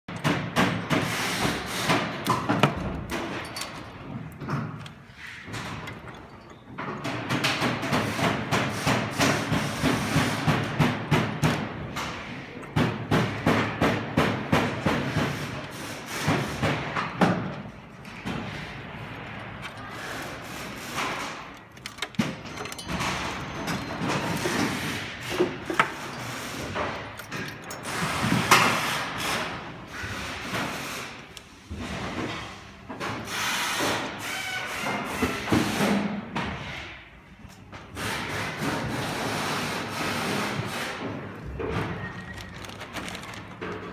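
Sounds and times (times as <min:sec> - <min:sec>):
cables and plastic rustling: 0:41.4 - 0:43.9.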